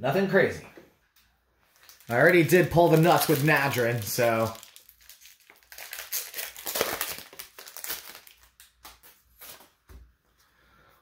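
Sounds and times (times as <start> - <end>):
foil wrapper crinkling and tearing: 1.7 - 9.7.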